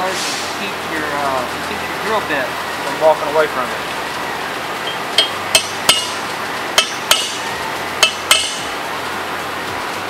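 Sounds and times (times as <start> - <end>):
hammer tapping metal punch: 4.9 - 6.2, 6.8 - 7.4, 8.0 - 8.7.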